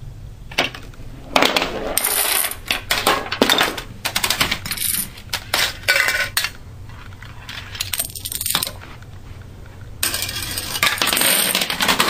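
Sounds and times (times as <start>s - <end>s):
dominoes and cases clattering on wood: 0.6s - 6.6s, 10.0s - 12.0s.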